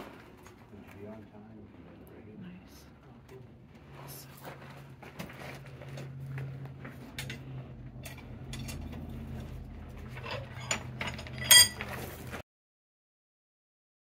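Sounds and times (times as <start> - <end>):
low hum: 0.0 - 12.4
metal clinking and scraping: 4.3 - 12.4
loud ringing metal clink: 8.0 - 12.0.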